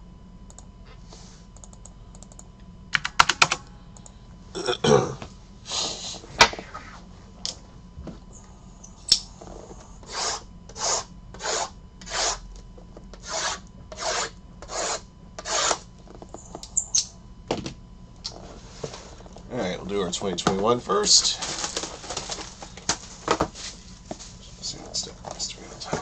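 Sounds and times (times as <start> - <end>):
hands rubbing shrink-wrapped boxes: 21.4 - 24.6.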